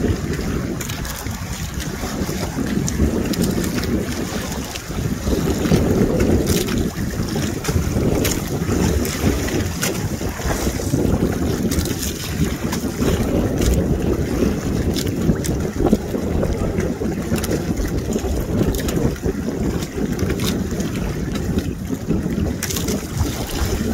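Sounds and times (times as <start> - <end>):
sharp ticks and splashes: 0.0 - 23.9
water sloshing around boat: 0.0 - 23.9
wind rumbling on microphone: 0.0 - 23.9.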